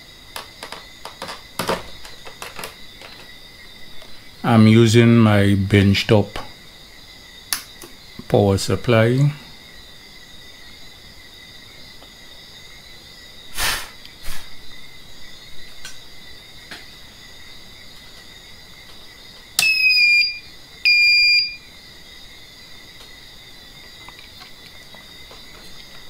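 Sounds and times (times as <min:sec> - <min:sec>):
high electronic beeps: 0:19.6 - 0:21.6.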